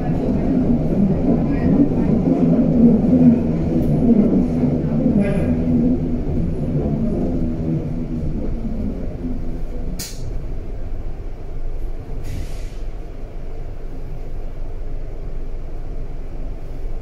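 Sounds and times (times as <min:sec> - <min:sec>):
train rumbling: 0:00.0 - 0:17.0
air brake hisses: 0:12.2 - 0:13.0.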